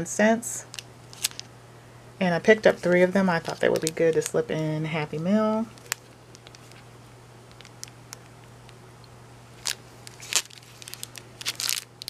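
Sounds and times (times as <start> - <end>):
faint steady hum: 0.0 - 12.0
plastic packaging crinkling: 0.7 - 1.5, 2.6 - 4.5, 5.6 - 6.9, 7.5 - 8.2, 9.6 - 12.0.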